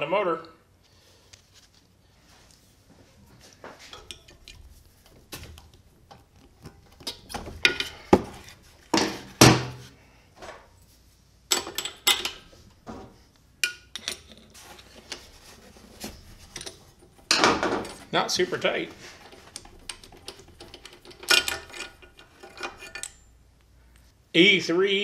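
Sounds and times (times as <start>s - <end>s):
metal tools clinking on engine: 19.3s - 23.2s.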